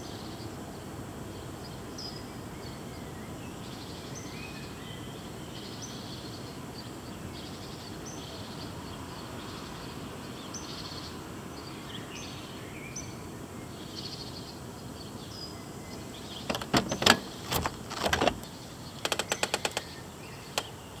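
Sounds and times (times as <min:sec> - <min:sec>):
birds chirping faintly: 0:00.0 - 0:21.0
rattle of clicks: 0:16.4 - 0:20.8.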